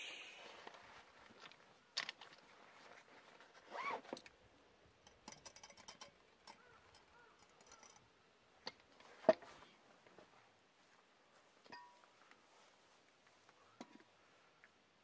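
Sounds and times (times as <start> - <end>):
bird call: 0.0 - 0.6
faint chirps: 0.0 - 0.7
small ticks and light clinks: 4.2 - 9.0.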